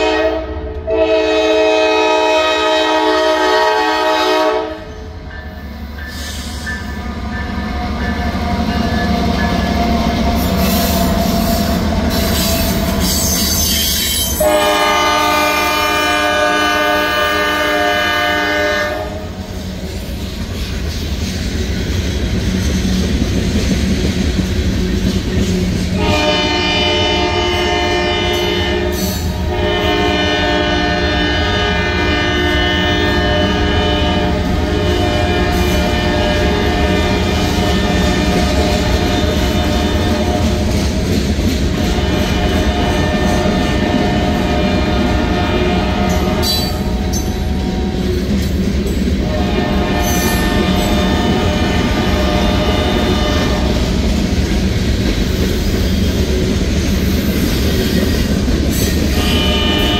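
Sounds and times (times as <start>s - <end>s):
train horn blasts: 0.0s - 5.2s, 10.5s - 19.5s, 26.0s - 40.9s, 41.7s - 48.0s, 49.2s - 54.2s, 59.0s - 59.9s
diesel locomotives rumbling: 0.0s - 59.9s.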